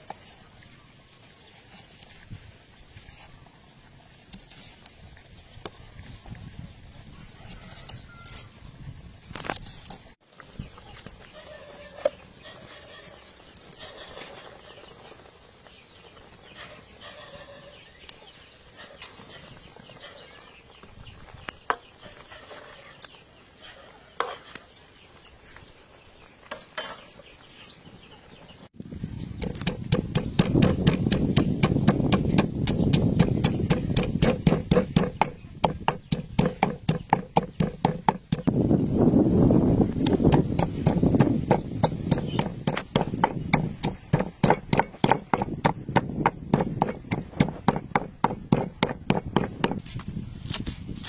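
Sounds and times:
pestle pounding in metal mortar: 29.4s - 38.6s, 40.0s - 49.9s.

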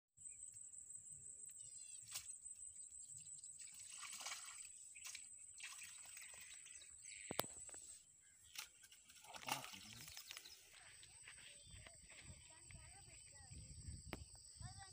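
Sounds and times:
water sloshing and splashing: 3.6s - 7.7s, 8.4s - 10.8s.

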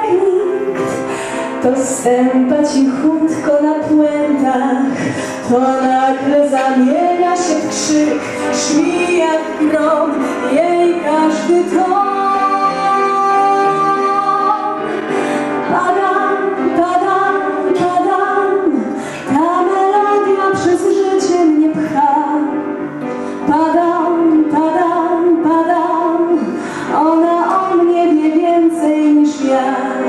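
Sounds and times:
instrumental accompaniment: 0.0s - 30.0s
woman singing: 0.0s - 30.0s.

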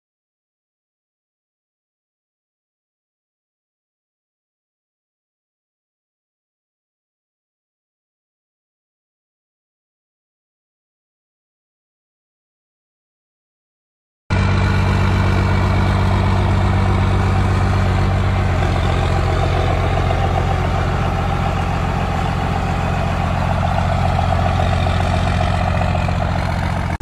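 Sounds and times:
truck engine idling: 14.3s - 27.0s.

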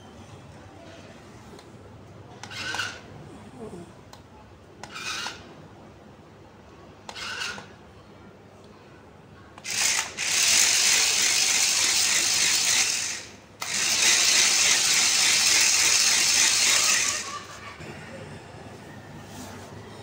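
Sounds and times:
toy car motors whirring: 2.4s - 3.0s, 4.8s - 5.4s, 7.1s - 7.7s, 9.6s - 17.6s.

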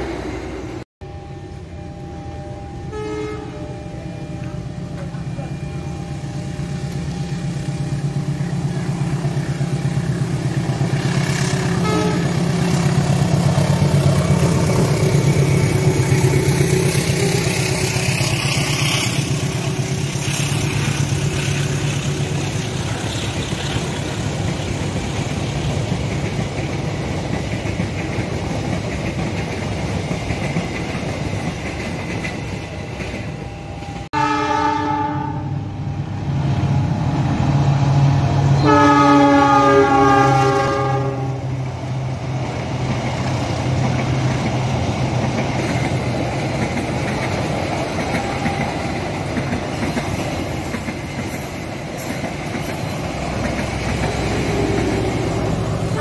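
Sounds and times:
diesel locomotive running: 0.0s - 56.0s
locomotive horn chord: 1.0s - 6.3s, 11.4s - 13.0s, 34.2s - 35.8s, 38.5s - 41.6s, 55.7s - 56.0s
train wheels clattering: 42.4s - 56.0s.

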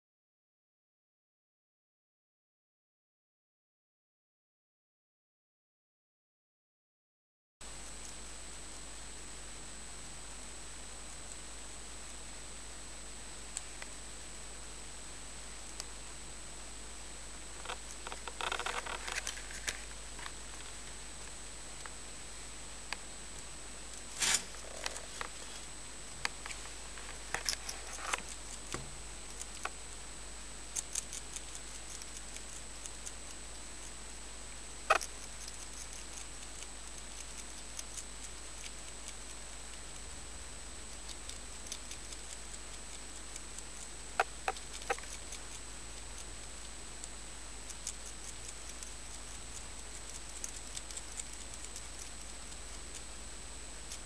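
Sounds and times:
hedgehog chewing and crunching: 17.5s - 22.0s, 26.2s - 29.9s, 30.6s - 54.0s.

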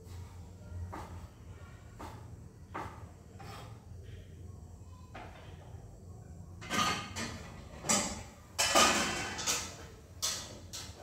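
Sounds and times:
cookware scraping and clattering: 2.8s - 3.9s, 6.6s - 11.0s.

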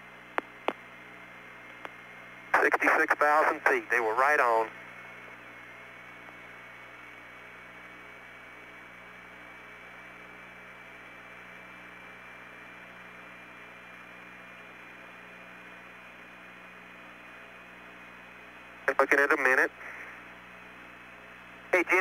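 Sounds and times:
radio static hiss: 1.9s - 4.8s, 18.8s - 20.4s, 21.7s - 22.0s.

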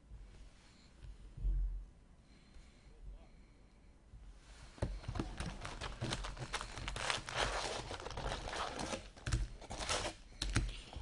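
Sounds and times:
foil card packs crinkling: 4.9s - 11.0s.

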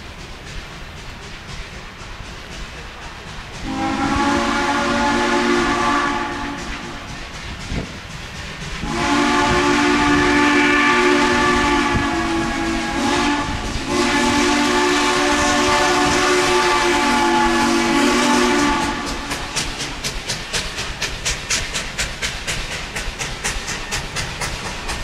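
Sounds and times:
passing train clicks: 0.0s - 25.0s
steam whistle blasts: 3.6s - 7.1s, 8.8s - 20.0s.

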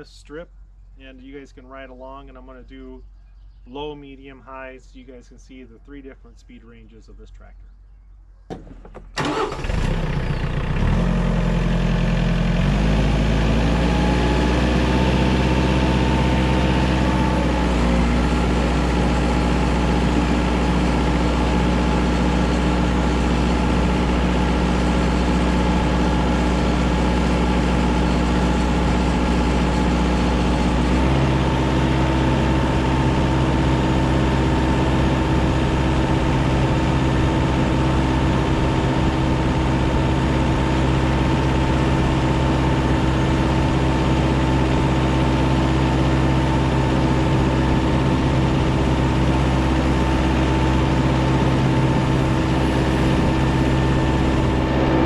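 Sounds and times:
tractor diesel engine: 8.5s - 55.0s.

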